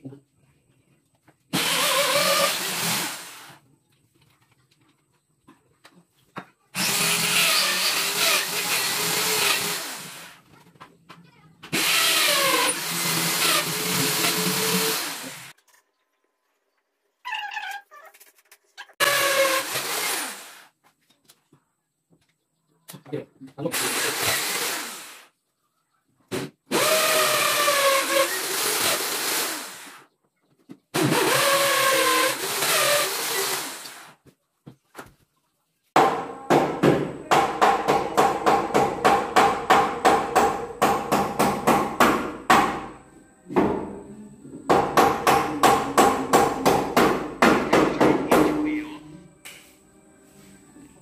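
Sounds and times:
electric drill boring into wall: 0:01.5 - 0:03.6, 0:06.8 - 0:10.4, 0:11.7 - 0:15.6, 0:19.0 - 0:20.7, 0:23.7 - 0:25.3, 0:26.7 - 0:30.0, 0:31.0 - 0:34.2.

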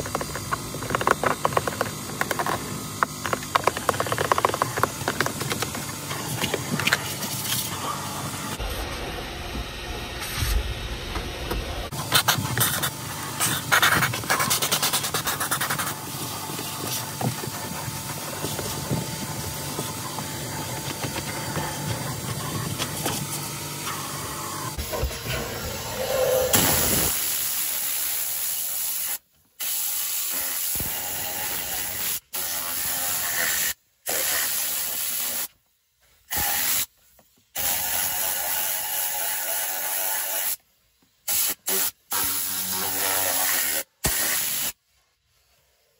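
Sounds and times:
steam cleaner hissing: 0:11.9 - 0:35.5, 0:36.3 - 0:37.0, 0:37.6 - 0:40.6, 0:41.2 - 0:45.9
brush scrubbing: 0:12.0 - 0:23.4
compressed air hissing: 0:41.3 - 0:44.8.

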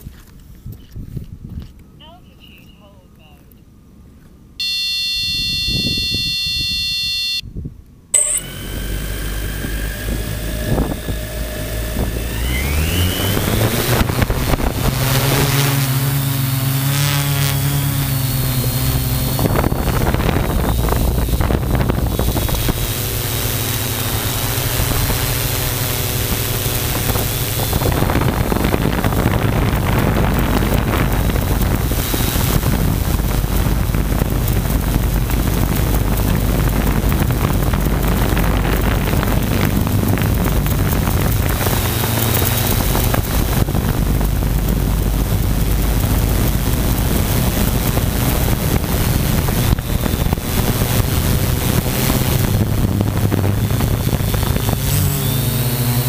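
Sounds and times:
drone motors whining: 0:04.6 - 0:07.4, 0:08.2 - 0:56.0
electronic beep: 0:04.6 - 0:07.4, 0:08.2 - 0:08.5
rushing noise: 0:08.2 - 0:55.8.

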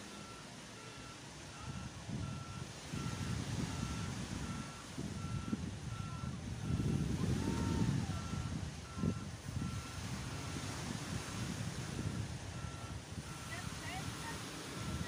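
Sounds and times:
reversing alarm beeping: 0:00.0 - 0:10.8, 0:11.4 - 0:15.0.

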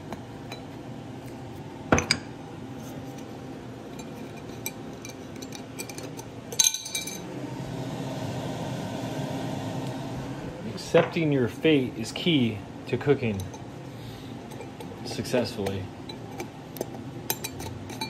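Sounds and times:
glass jars clinking: 0:01.9 - 0:02.3, 0:03.9 - 0:07.3, 0:15.6 - 0:18.0
jar rattling: 0:16.1 - 0:18.0.

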